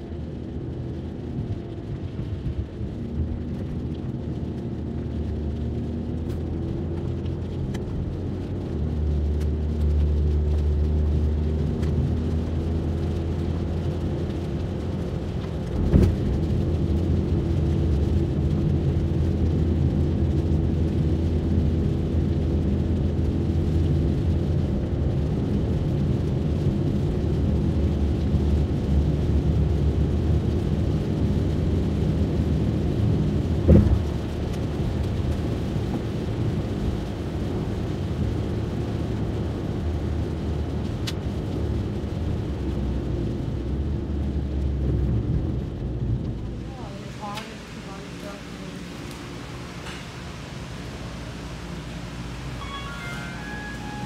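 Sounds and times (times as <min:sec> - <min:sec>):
car engine and tyre drone: 0:00.0 - 0:46.8, 0:48.9 - 0:54.0
brief thump: 0:33.7 - 0:34.1.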